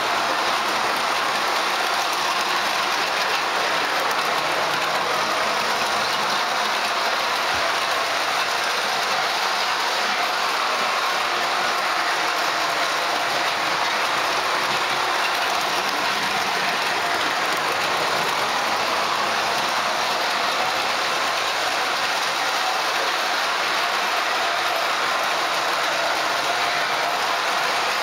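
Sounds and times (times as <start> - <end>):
model train whirring and rattling: 0.0 - 28.0.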